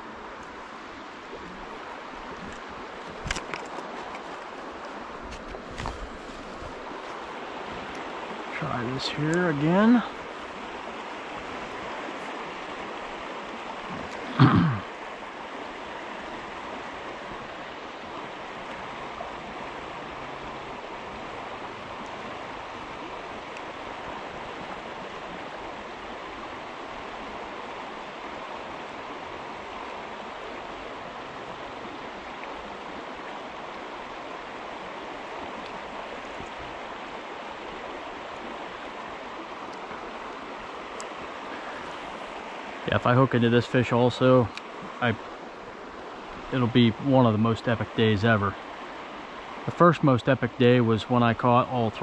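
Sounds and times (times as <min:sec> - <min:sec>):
stream water rushing: 0:00.0 - 0:52.0.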